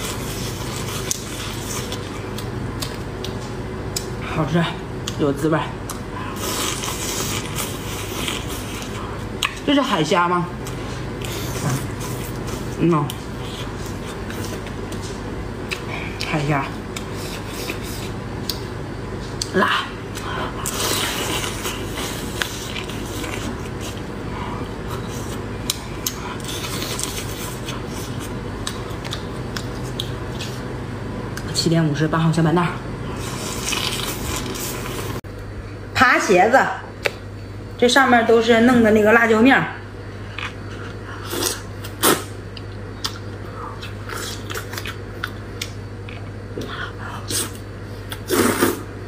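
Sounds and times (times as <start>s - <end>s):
wet eating sounds: 0.0s - 4.2s, 5.8s - 10.0s, 10.6s - 31.5s, 33.1s - 35.2s, 40.2s - 48.9s.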